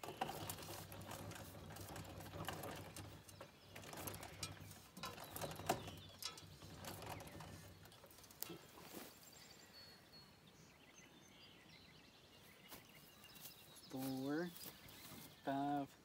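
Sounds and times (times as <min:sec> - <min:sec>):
planter chain clicking and rattling: 0:00.0 - 0:08.7.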